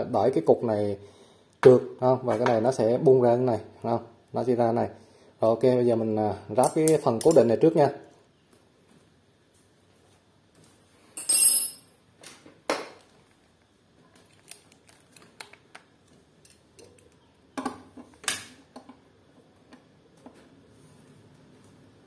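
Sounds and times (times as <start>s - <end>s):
metal latch parts clinking: 11.2s - 11.9s.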